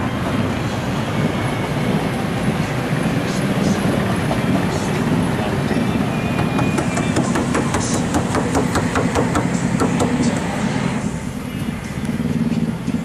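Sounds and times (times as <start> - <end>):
rapid clacking knocks: 6.4 - 10.5.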